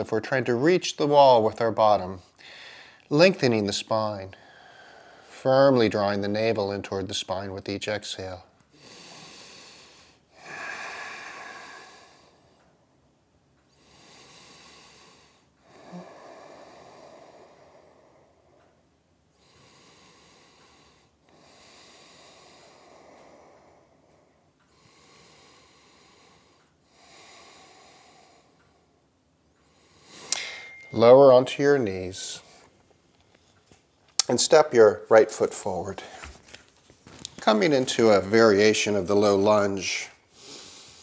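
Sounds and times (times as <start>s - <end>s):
man breathing deeply: 2.3s - 3.1s, 4.4s - 5.4s, 8.7s - 12.8s, 13.7s - 29.0s, 29.6s - 31.2s, 40.2s - 41.0s.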